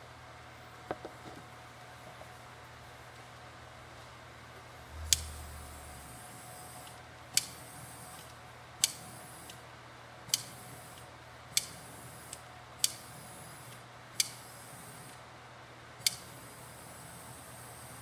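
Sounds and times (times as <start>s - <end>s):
torch igniter clicks: 5.0s - 5.5s, 6.8s - 9.6s, 10.3s - 13.1s, 13.7s - 14.4s, 16.0s - 16.3s.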